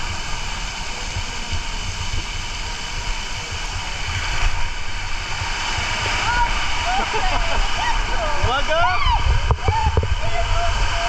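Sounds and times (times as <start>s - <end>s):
low rumbling buffets: 0.0s - 11.0s
rush of water and air: 0.0s - 11.0s.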